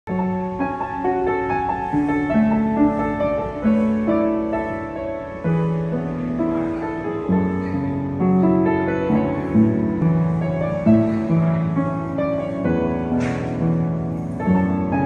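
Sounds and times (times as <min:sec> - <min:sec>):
upright piano playing: 0:00.1 - 0:15.0.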